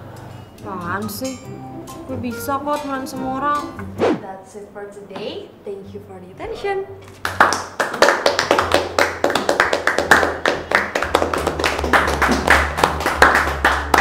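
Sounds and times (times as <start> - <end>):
people clapping: 7.1 - 14.0.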